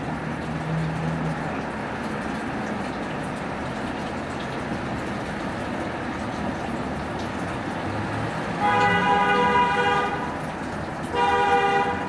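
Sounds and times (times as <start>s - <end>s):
traffic noise: 0.0s - 12.0s
vehicle horn held tone: 8.6s - 10.2s, 11.2s - 12.0s.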